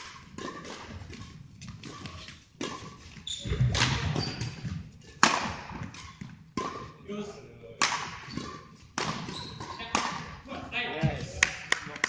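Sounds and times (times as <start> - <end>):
rackets hitting shuttlecock: 0.0 - 7.0, 7.8 - 10.4.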